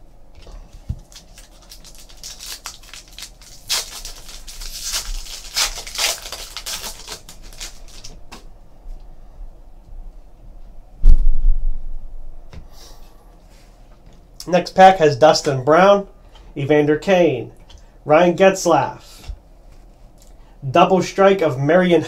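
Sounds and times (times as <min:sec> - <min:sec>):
foil wrapper crinkling and tearing: 0:00.7 - 0:08.3.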